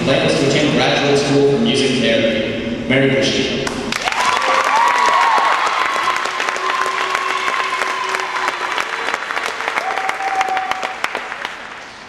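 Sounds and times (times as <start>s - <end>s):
crowd applauding: 3.9s - 12.0s.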